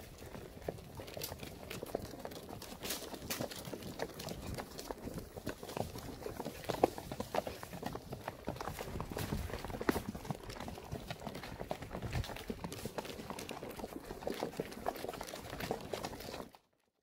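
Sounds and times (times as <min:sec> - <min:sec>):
horse hoofbeats: 0:00.0 - 0:16.6
rustling noise: 0:08.7 - 0:10.5.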